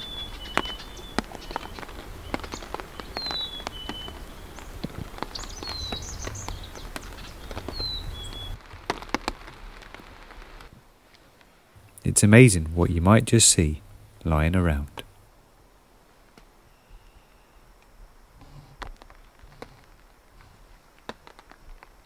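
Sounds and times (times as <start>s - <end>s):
low wind rumble: 0.0s - 22.0s
songbird two-note call: 16.7s - 17.7s.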